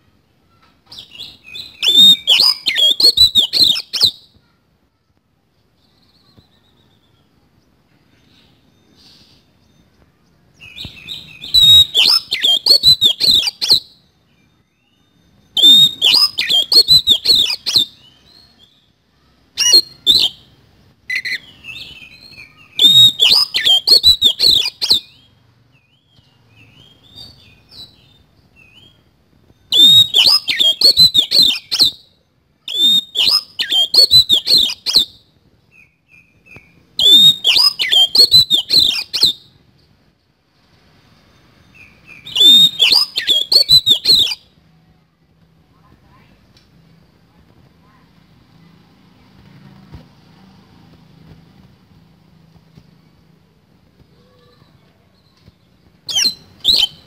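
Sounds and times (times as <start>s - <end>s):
soft bird chirps: 0.0s - 44.6s, 51.2s - 57.0s
magpie-robin singing harsh notes: 0.9s - 4.3s, 10.6s - 14.0s, 14.8s - 18.8s, 19.4s - 20.5s, 21.1s - 25.4s, 29.7s - 32.1s, 32.7s - 35.2s, 37.0s - 39.5s, 41.7s - 44.5s, 56.0s - 57.0s.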